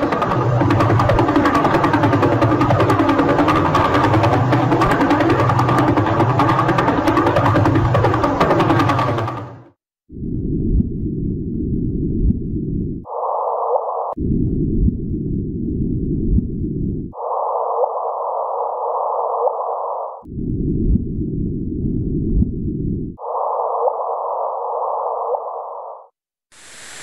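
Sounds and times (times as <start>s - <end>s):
rough higher-pitched band: 0.0s - 9.6s
rough low hum: 0.0s - 9.7s.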